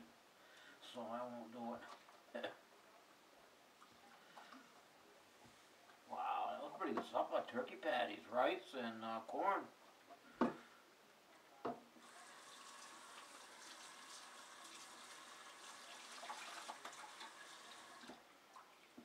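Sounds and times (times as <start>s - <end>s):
faucet running into sink: 12.0s - 18.2s.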